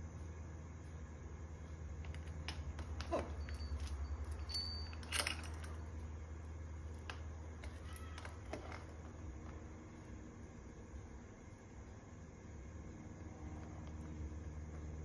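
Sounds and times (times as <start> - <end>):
steady low hum: 0.0 - 15.0
metal chain clinking: 2.1 - 6.1.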